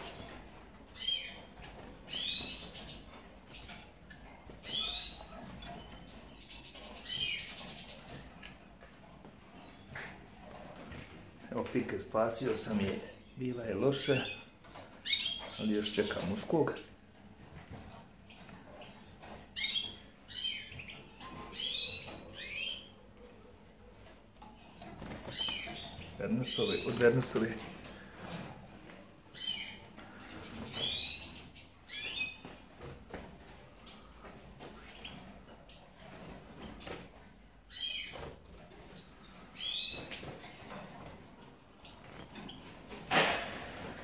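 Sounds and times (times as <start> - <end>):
finches chirping: 0.0 - 8.2, 12.6 - 17.0, 18.2 - 23.1, 25.0 - 28.1, 29.3 - 32.6, 37.7 - 38.2, 39.0 - 40.6
goldfinch chirps: 2.1 - 3.8, 4.6 - 8.0, 39.6 - 40.2.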